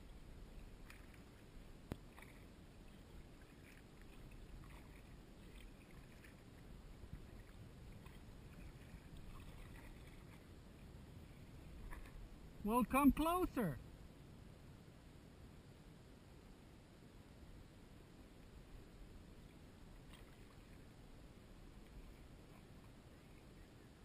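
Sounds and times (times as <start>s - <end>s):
kayak paddle strokes in water: 0.0s - 13.5s, 19.4s - 24.0s
low steady rumble: 0.0s - 24.0s.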